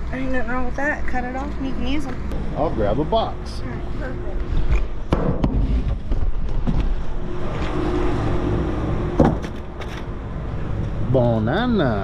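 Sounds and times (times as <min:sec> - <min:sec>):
low rumble: 0:01.8 - 0:11.2.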